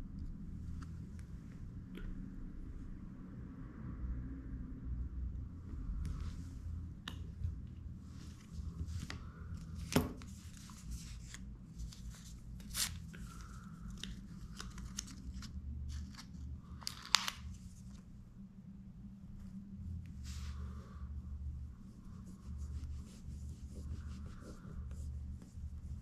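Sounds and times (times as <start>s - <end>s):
film peeling and rustling: 8.4s - 18.0s.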